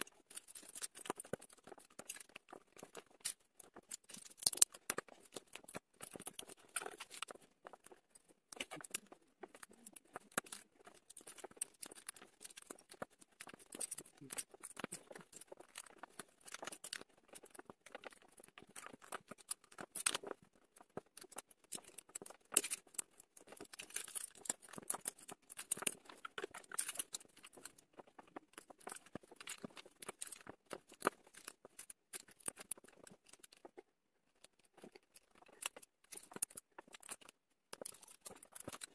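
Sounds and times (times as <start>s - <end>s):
plastic bricks clicking and clattering: 0.0s - 38.9s.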